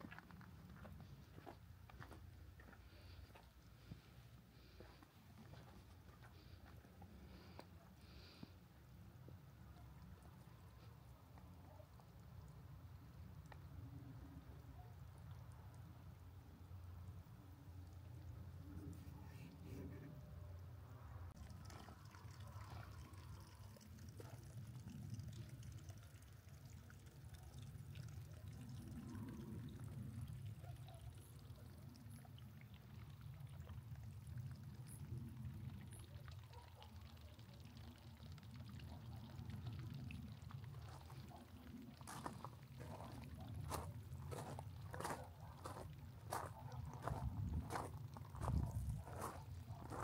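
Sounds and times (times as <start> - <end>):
running water: 21.3 - 50.0.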